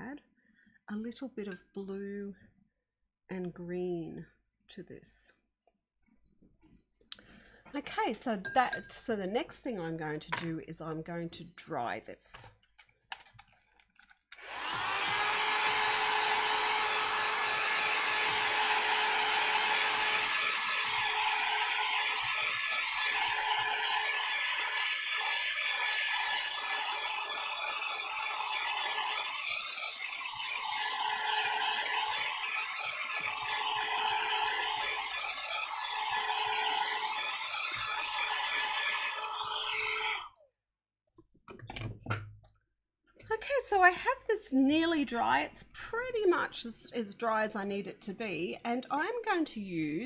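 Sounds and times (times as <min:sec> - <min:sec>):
hot-air dryer blowing with whine: 0:14.4 - 0:40.2.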